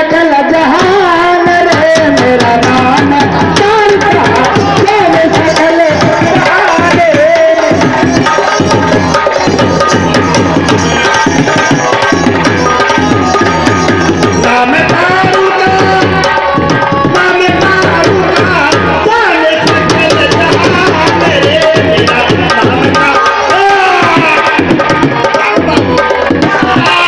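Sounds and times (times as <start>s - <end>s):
hand drums playing fast rhythm: 0.4s - 27.0s.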